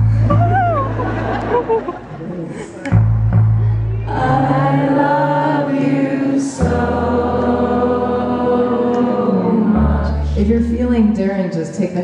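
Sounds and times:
low bass note: 0:02.9 - 0:04.8
choir singing long notes: 0:03.8 - 0:10.5.

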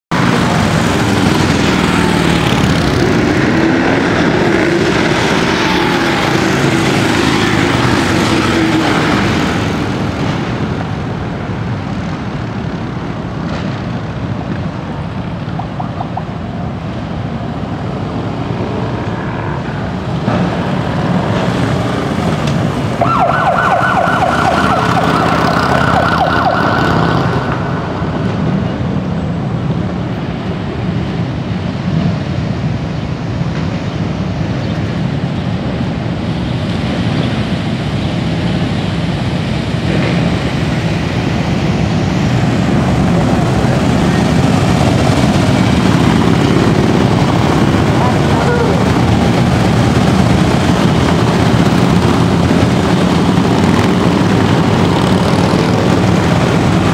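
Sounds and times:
motorcycle engines rumbling: 0:00.1 - 0:56.9
pulsing siren yelp: 0:15.6 - 0:16.4, 0:23.0 - 0:28.2, 0:47.0 - 0:49.7.

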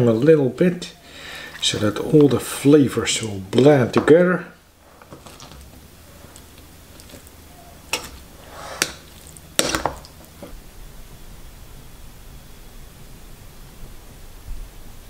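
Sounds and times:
metal spoon stirring salad: 0:04.9 - 0:10.5.

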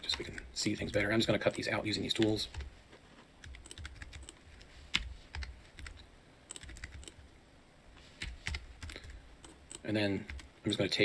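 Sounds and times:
keyboard keys clicking: 0:03.4 - 0:07.2, 0:08.2 - 0:10.5.

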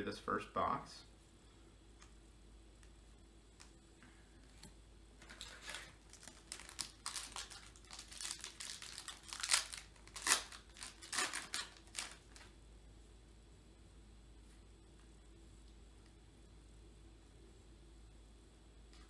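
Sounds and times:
wrapper tearing and crinkling: 0:05.2 - 0:12.5.

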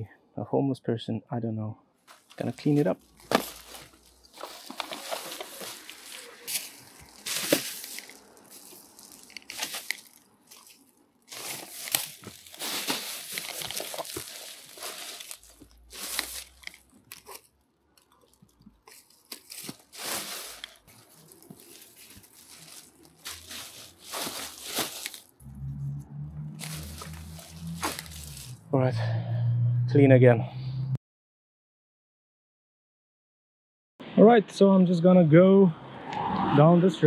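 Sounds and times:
plastic bags crinkling: 0:02.1 - 0:25.5, 0:26.5 - 0:28.6.

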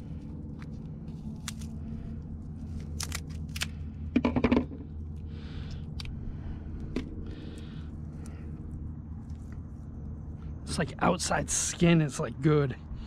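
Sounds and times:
steady low rumble: 0:00.0 - 0:13.0
scissors cutting shell: 0:02.8 - 0:03.7.

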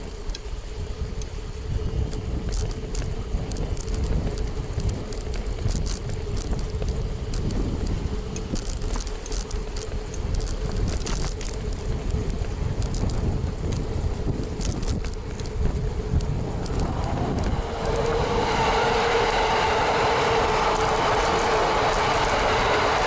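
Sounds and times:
bike rattles and clicks: 0:00.0 - 0:23.0
steady hum: 0:00.0 - 0:23.0
wind and road rumble: 0:00.0 - 0:23.0.

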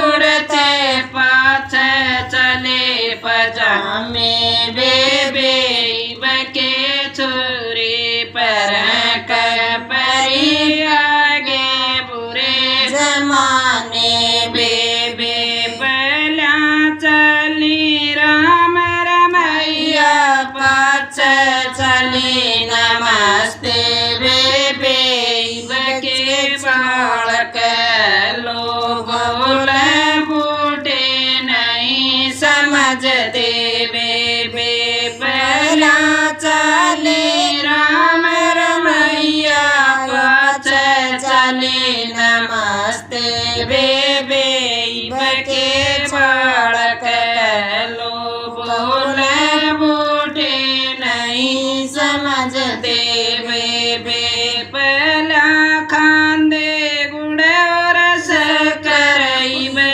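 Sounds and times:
woman singing folk song: 0:12.8 - 0:59.9.

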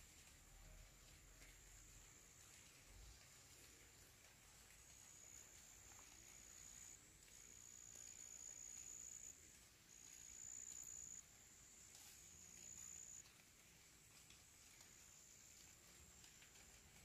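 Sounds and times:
high-pitched insect trill: 0:12.3 - 0:13.2.

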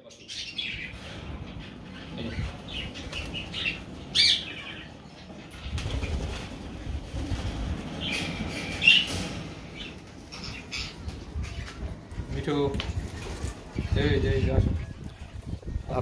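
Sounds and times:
parakeet squawks: 0:00.3 - 0:04.9
bird wings flapping: 0:05.5 - 0:10.4.

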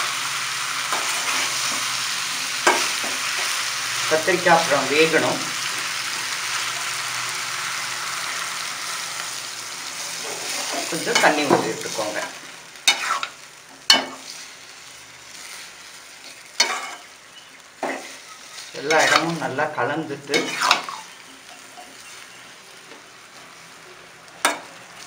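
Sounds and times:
eggplant sizzling in oil: 0:00.0 - 0:25.0
utensil scraping pan: 0:10.2 - 0:12.3, 0:12.9 - 0:14.4, 0:16.3 - 0:17.1, 0:20.3 - 0:22.1.

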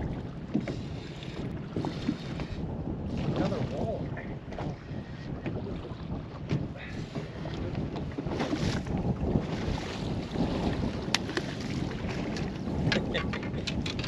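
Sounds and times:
waves lapping at boat: 0:00.0 - 0:14.0
wind blowing across microphone: 0:00.0 - 0:14.0.

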